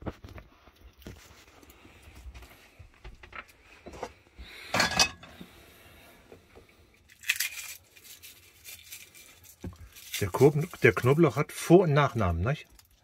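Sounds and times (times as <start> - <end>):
garlic crackling and rustling: 7.0 - 13.0.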